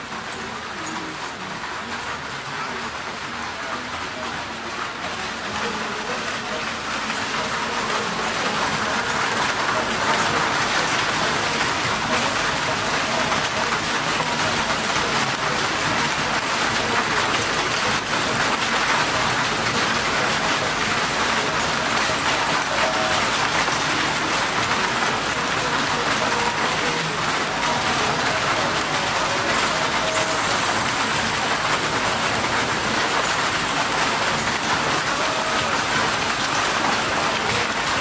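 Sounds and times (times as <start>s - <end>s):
amusement ride hissing din: 0.0s - 38.0s.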